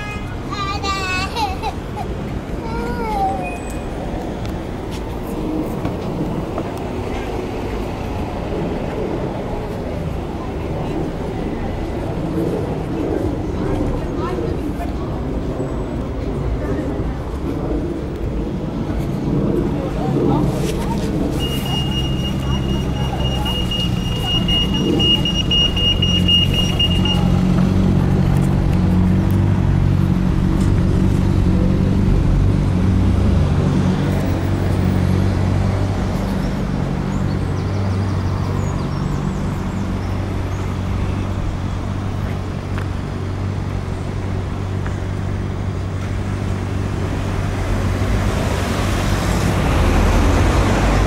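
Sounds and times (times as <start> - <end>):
road noise from cars: 0.0 - 51.0
pedestrian crossing beeping: 21.3 - 28.0.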